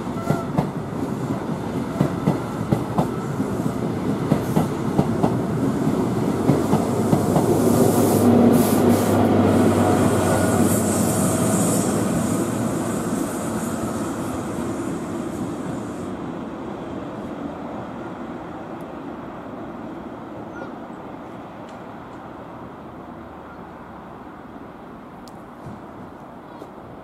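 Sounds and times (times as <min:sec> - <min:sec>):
electric locomotive humming: 0:00.0 - 0:26.1
train wheels clicking over rail joints: 0:00.2 - 0:05.5.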